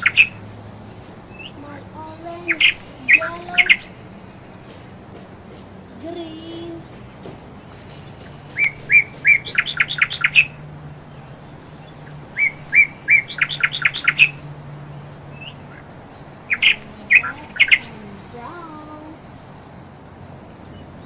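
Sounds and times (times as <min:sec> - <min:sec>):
bird calls: 0:00.0 - 0:21.0
bird singing: 0:00.0 - 0:21.0.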